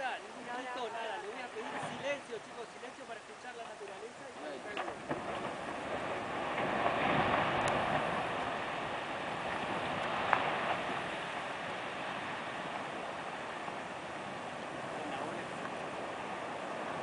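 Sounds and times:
glacier ice crashing into water: 4.7s - 17.0s.

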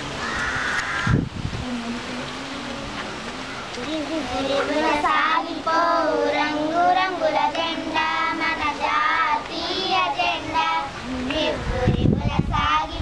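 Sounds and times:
girls singing together: 2.9s - 13.0s.

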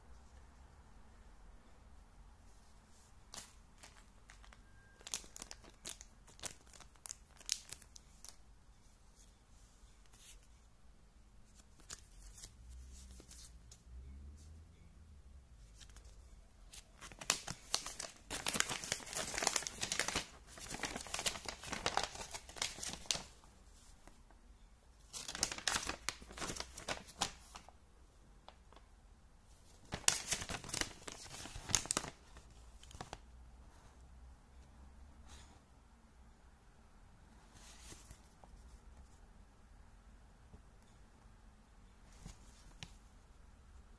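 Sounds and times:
paper rustling and crinkling: 2.9s - 8.4s, 15.7s - 24.2s, 25.0s - 27.7s, 29.6s - 33.2s, 37.5s - 38.8s
plastic bag crinkling: 3.4s - 8.4s, 17.0s - 23.4s, 25.1s - 27.7s.

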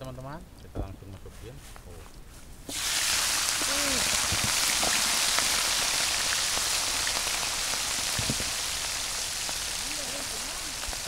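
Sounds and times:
oil pops and crackles: 2.7s - 9.7s
deep-frying sizzle: 2.7s - 11.0s.

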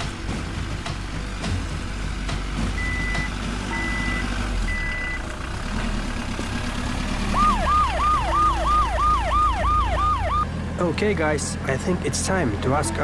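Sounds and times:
low engine hum: 0.0s - 13.0s
reversing alarm beeping: 2.8s - 5.2s, 7.4s - 10.4s
ambulance siren yelp: 7.3s - 10.5s.

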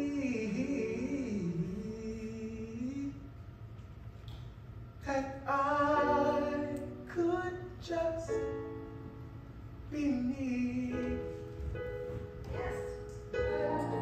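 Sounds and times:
instrumental accompaniment: 11.0s - 14.0s.

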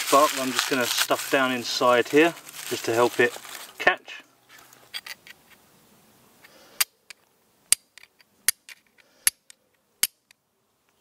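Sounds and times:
fire striker clicking on flint: 6.8s - 11.0s.

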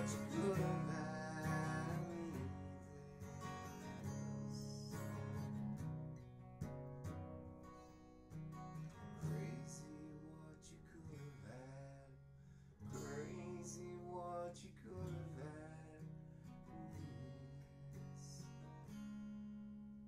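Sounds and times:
man singing: 0.0s - 5.4s, 9.2s - 12.2s, 12.9s - 16.1s, 16.7s - 18.6s
acoustic guitar strumming: 0.0s - 20.0s.

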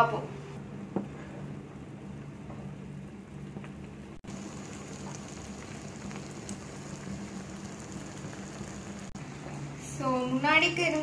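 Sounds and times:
sauce bubbling and popping: 4.2s - 9.2s.

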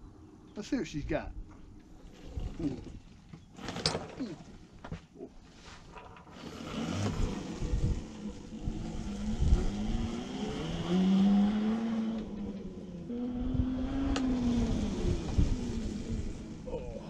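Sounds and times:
small wheels rumbling on concrete: 2.0s - 4.7s, 5.5s - 13.1s
electric motor whining: 6.3s - 16.6s.

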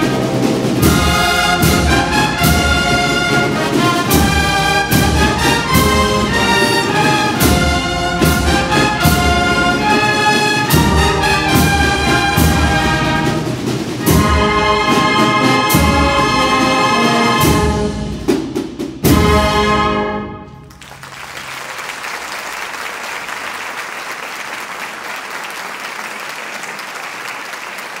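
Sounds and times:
brass and percussion band playing a march: 0.0s - 21.3s
audience applauding: 20.7s - 28.0s.

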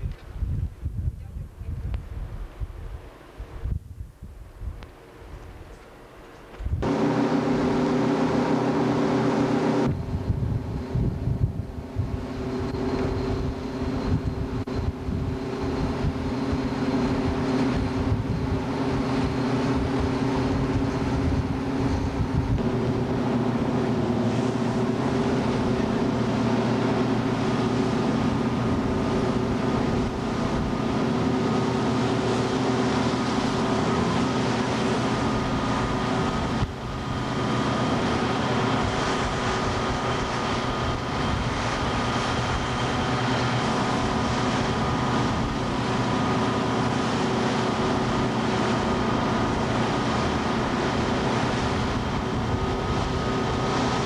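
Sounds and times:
rush of wind and water: 0.0s - 54.0s
boat engine droning: 4.4s - 54.0s.

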